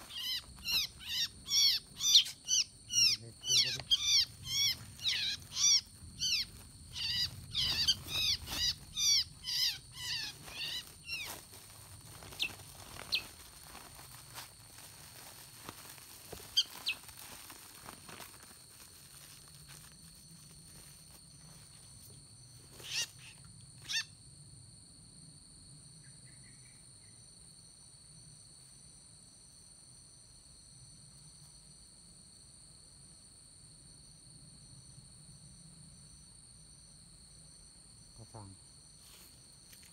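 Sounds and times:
bird chirping: 0.0s - 11.3s, 12.3s - 13.3s
high insect drone: 0.0s - 39.9s.

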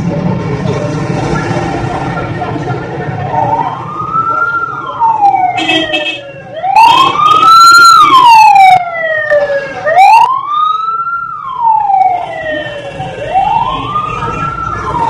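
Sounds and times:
fire truck siren wailing: 3.1s - 15.0s.

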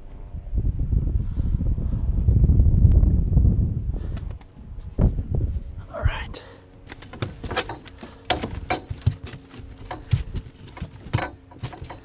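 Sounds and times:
fish and net knocking on boat deck: 6.9s - 12.0s.

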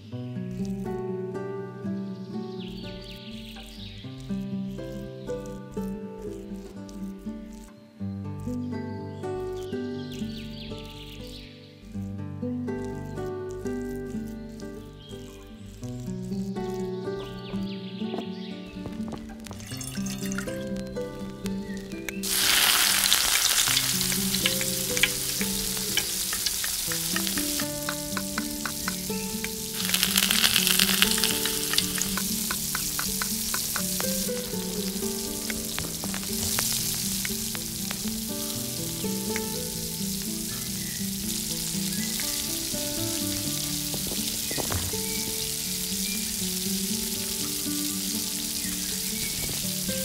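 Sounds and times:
background music: 0.0s - 50.0s
food sizzling in hot oil: 18.8s - 50.0s.

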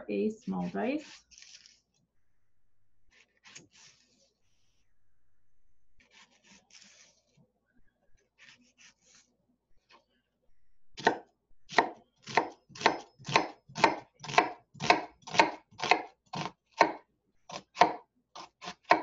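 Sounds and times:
knife chopping onion on board: 11.0s - 19.0s.

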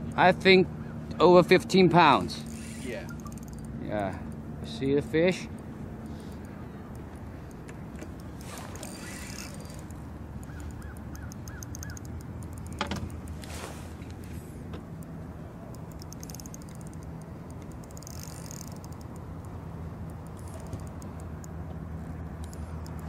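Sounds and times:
steady low hum: 0.0s - 23.0s
fishing reel ticking: 2.4s - 4.4s, 5.3s - 13.3s, 15.7s - 21.6s, 22.4s - 23.0s.

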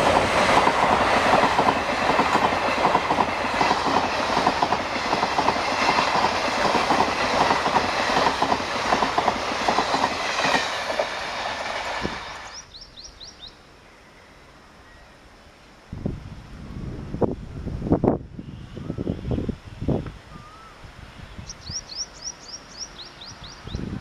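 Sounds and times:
train wheels clattering over rail joints: 0.0s - 12.5s.

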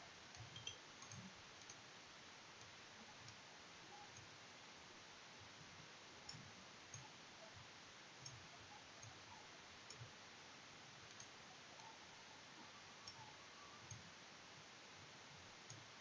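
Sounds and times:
faint hiss: 0.0s - 16.0s
computer mouse clicks: 8.2s - 8.4s, 11.1s - 12.0s, 13.0s - 14.1s.

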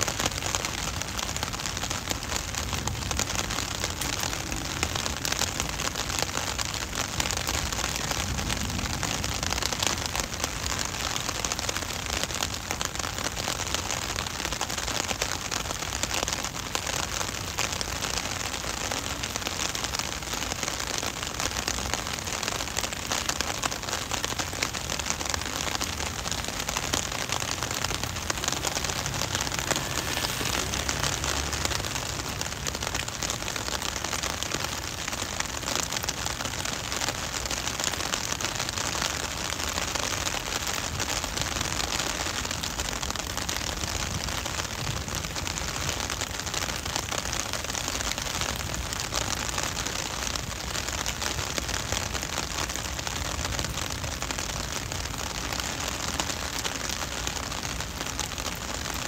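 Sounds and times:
heavy rain on pavement: 0.0s - 59.0s
low rumble: 25.9s - 34.0s.

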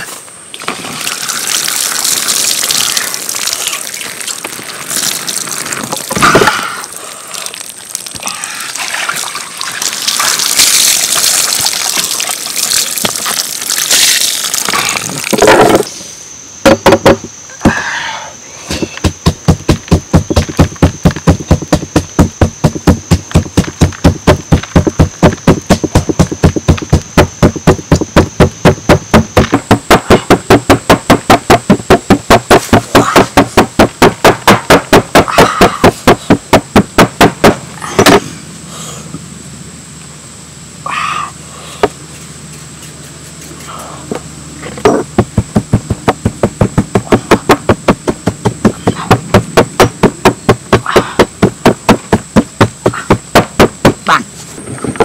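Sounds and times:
pestle pounding in stone mortar: 16.6s - 17.8s, 19.0s - 38.2s, 44.9s - 54.1s.

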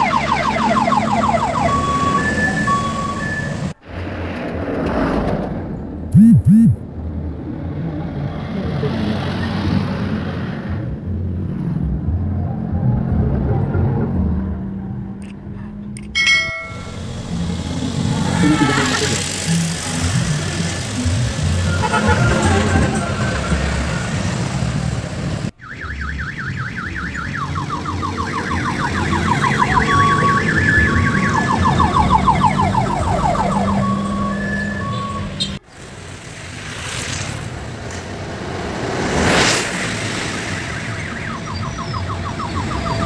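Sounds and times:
bus engine hum: 5.4s - 25.6s
electronic siren horn warbling: 6.2s - 6.8s, 21.0s - 23.5s, 25.6s - 35.4s
short steady beeps: 6.2s - 6.8s.

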